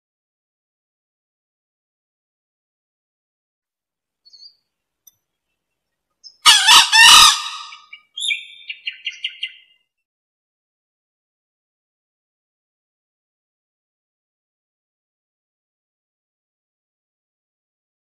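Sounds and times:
junglefowl crowing: 6.4s - 8.0s.

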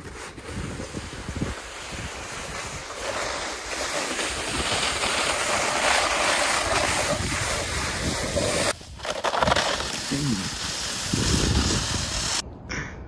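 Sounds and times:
wind rushing over microphone: 0.0s - 3.1s, 6.6s - 8.9s, 10.2s - 12.7s.

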